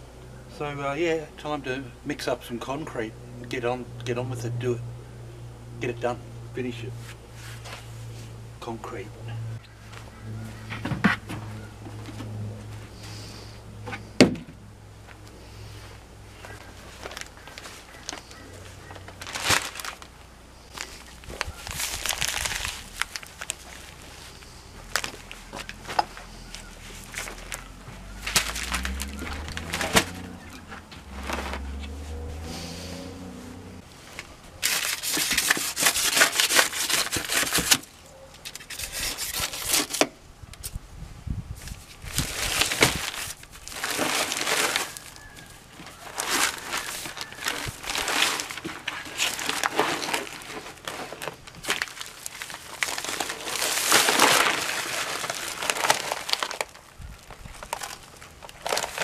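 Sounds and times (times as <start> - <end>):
paper sacks crinkling: 16.3 - 32.4, 34.2 - 38.0, 41.6 - 59.0
low rumble: 27.1 - 33.9.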